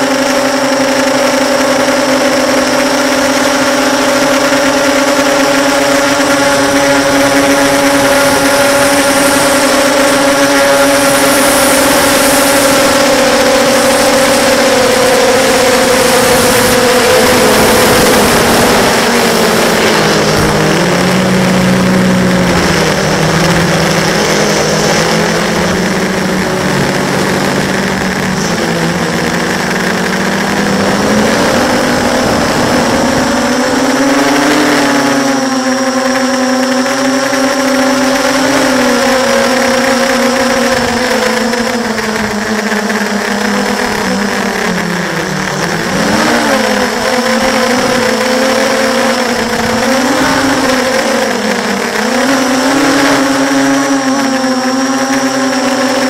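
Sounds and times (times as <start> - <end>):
quadcopter motors whining: 0.0 - 56.0.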